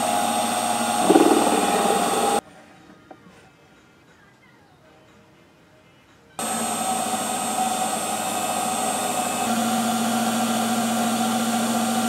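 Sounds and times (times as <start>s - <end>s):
lathe motor hum and whine: 0.0s - 2.4s, 6.4s - 12.0s.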